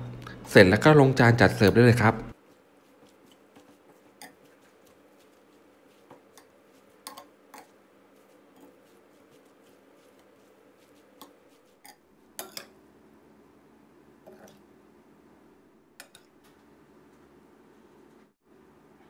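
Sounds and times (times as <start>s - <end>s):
soft wet mixing: 0.0s - 19.0s
spoon clinking against glass bowl: 11.8s - 12.7s.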